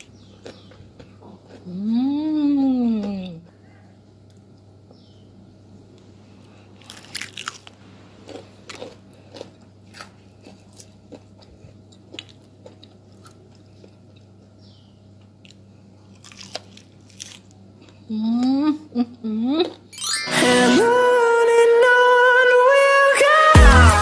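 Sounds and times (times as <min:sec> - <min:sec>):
fried chicken crunching: 0:00.0 - 0:01.9, 0:06.5 - 0:14.5, 0:15.3 - 0:18.0
faint low hum: 0:00.0 - 0:24.0.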